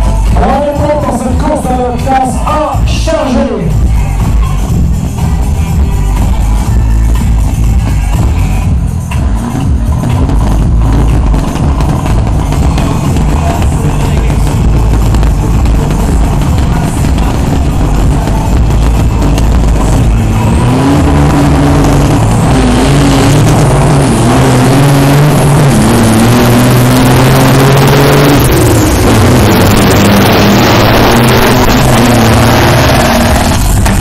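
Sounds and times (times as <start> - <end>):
diesel truck engines accelerating: 0.0 - 34.0
truck passing close by: 9.3 - 34.0.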